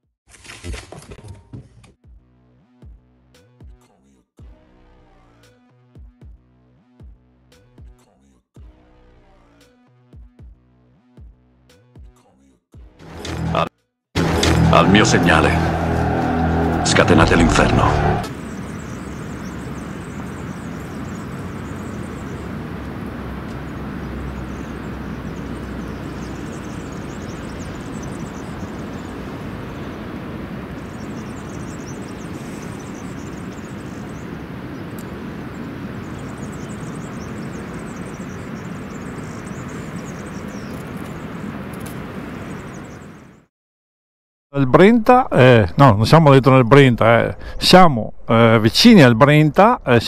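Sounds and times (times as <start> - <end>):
wind: 0.3 - 2.0, 13.2 - 43.5, 44.6 - 50.0
river water flowing: 14.2 - 43.2
high twittering: 14.3 - 41.1.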